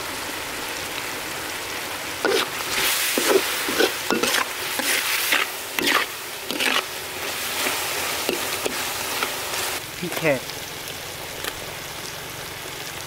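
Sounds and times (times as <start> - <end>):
food sizzling in oil: 0.0 - 13.0
spatula scraping wok: 2.2 - 9.8.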